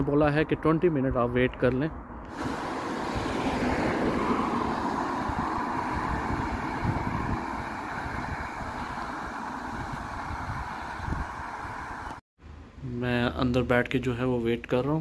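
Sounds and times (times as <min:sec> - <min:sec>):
passing vehicle engine and tyres: 0:02.0 - 0:12.2.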